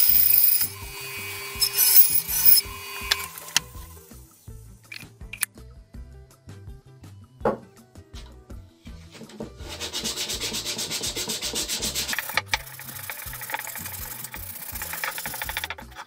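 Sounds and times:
sandpaper rubbing over wood: 0:09.3 - 0:16.0.

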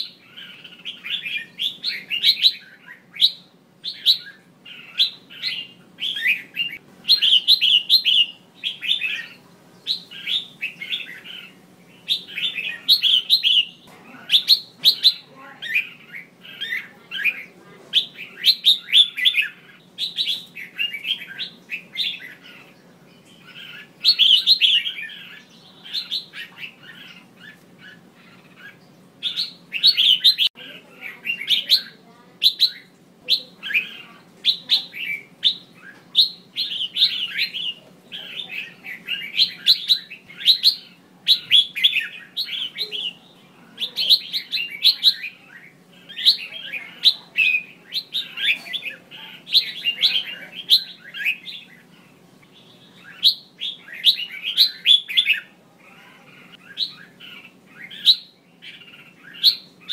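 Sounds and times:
bird chattering calls: 0:00.0 - 0:59.9.

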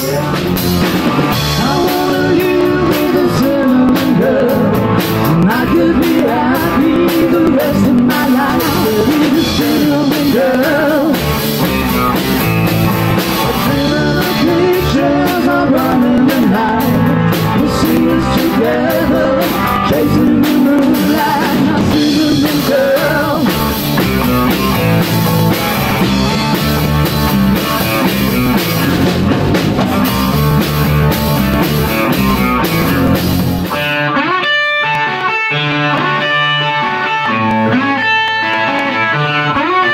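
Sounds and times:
man singing: 0:00.0 - 0:11.4, 0:13.5 - 0:23.7
bass guitar: 0:00.0 - 0:39.9
drum kit: 0:00.0 - 0:39.9
electric guitar: 0:00.0 - 0:39.9.

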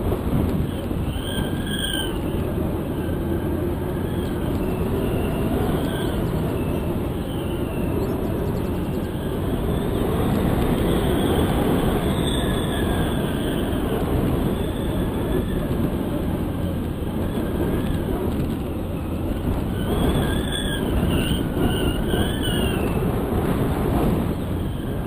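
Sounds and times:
wind buffeting microphone: 0:00.0 - 0:25.0
faint high whistle: 0:00.6 - 0:15.8, 0:18.9 - 0:23.1.

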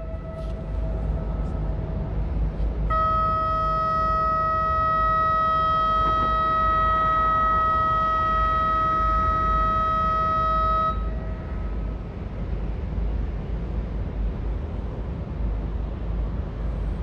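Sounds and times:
horn long steady note: 0:00.0 - 0:12.1.

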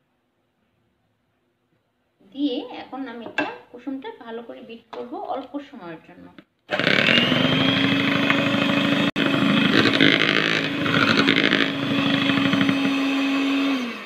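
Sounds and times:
electric hand mixer whisking: 0:06.7 - 0:14.0.

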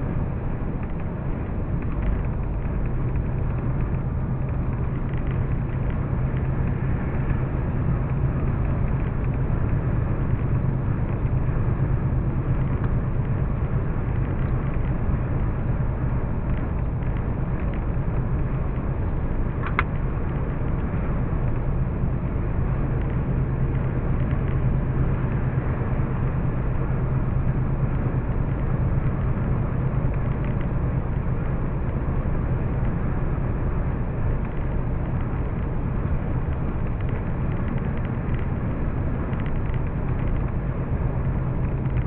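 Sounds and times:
low hum: 0:00.0 - 0:42.0
vehicle engine and road noise: 0:00.0 - 0:42.0.

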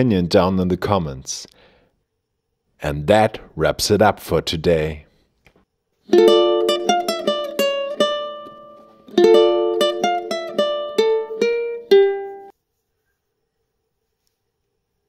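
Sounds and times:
plucked string instrument music: 0:06.1 - 0:12.5.

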